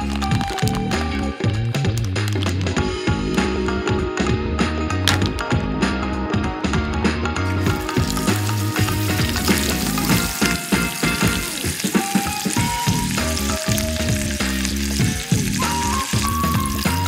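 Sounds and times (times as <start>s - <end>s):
fat popping: 0.0s - 2.8s, 5.0s - 5.6s, 7.5s - 17.0s
background music: 0.0s - 17.0s
pork sizzling in a pan: 7.5s - 17.0s.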